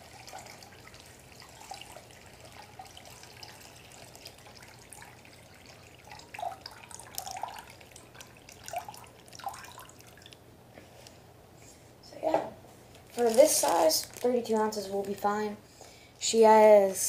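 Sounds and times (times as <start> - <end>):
water trickling into plastic bag: 0.0 - 10.4, 13.0 - 15.5.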